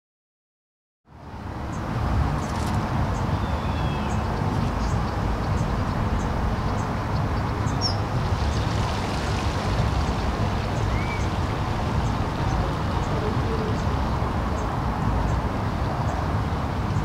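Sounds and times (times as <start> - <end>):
wind buffeting microphone: 1.3 - 17.0.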